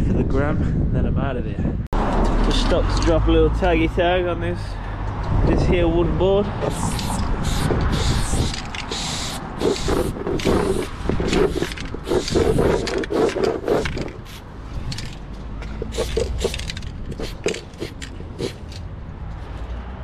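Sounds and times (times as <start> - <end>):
aerosol spray can hissing: 6.7 - 14.4, 15.8 - 16.6, 17.2 - 18.6.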